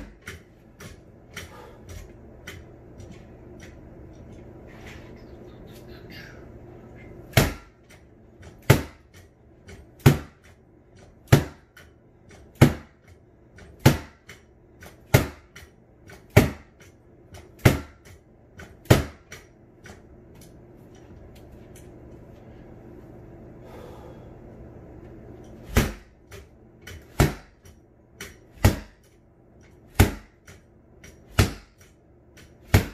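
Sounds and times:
sword hitting punching bag: 0:16.3 - 0:16.7, 0:25.6 - 0:26.2, 0:27.1 - 0:27.6, 0:28.2 - 0:29.0, 0:29.9 - 0:30.4, 0:31.3 - 0:31.8, 0:32.6 - 0:32.9.

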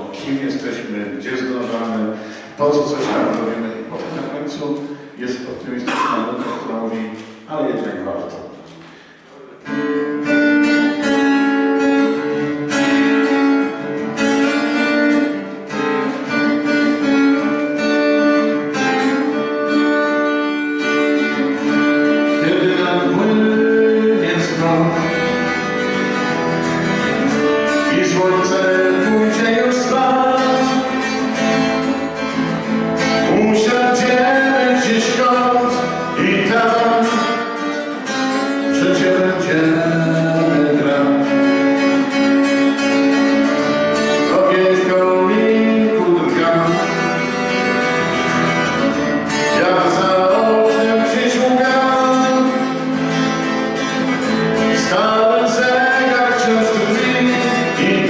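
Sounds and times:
acoustic guitar strumming: 0:00.0 - 0:58.0
man singing: 0:21.2 - 0:25.9, 0:26.9 - 0:32.0, 0:33.0 - 0:47.8, 0:49.2 - 0:53.3, 0:54.2 - 0:58.0.

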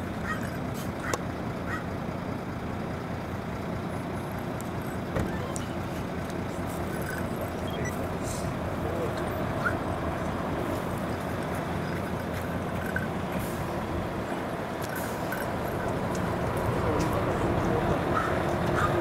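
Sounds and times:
truck diesel engine rumbling: 0:00.0 - 0:19.0.

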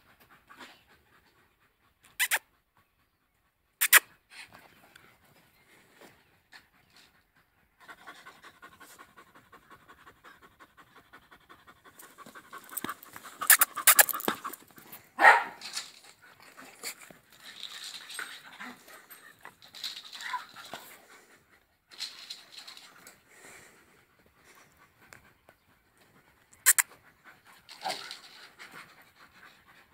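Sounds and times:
dogs panting quickly: 0:00.0 - 0:15.2, 0:15.9 - 0:29.9
dog whining: 0:02.2 - 0:02.4.

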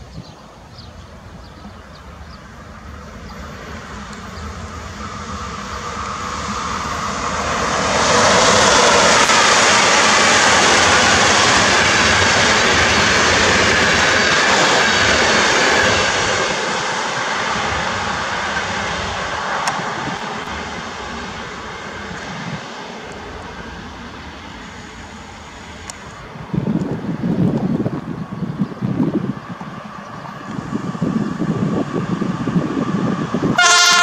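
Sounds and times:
train wheels rushing on rails: 0:00.0 - 0:34.0.

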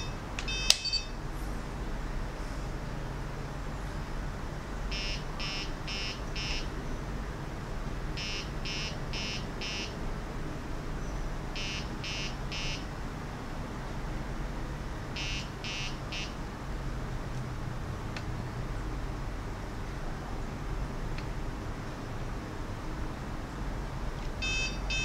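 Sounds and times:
electronic beeper short high beeps: 0:00.0 - 0:01.2
steady low hum: 0:00.0 - 0:25.0.

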